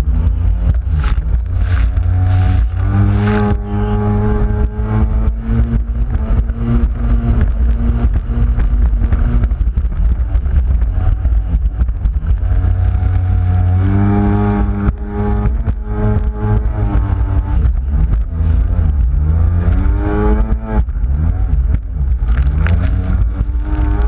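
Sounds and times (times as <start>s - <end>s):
boat engine droning: 0.0s - 5.9s
wind: 0.0s - 24.0s.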